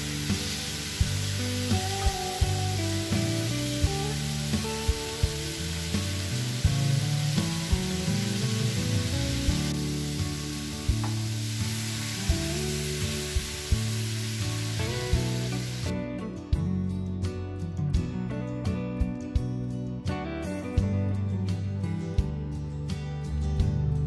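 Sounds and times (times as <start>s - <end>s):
food sizzling in a pan: 0.0s - 15.9s
water poured into hot pan: 0.0s - 15.9s
soft background music: 0.0s - 24.0s.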